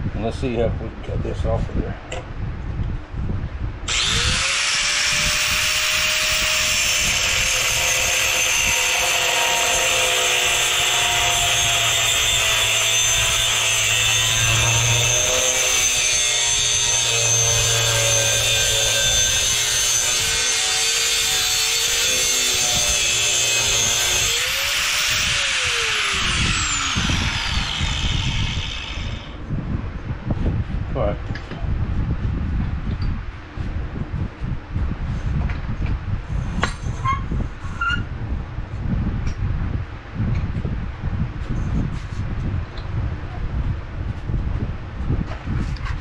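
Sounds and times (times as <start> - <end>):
angle grinder cutting metal pipe: 3.9 - 29.4
grinder winding down: 3.9 - 29.4.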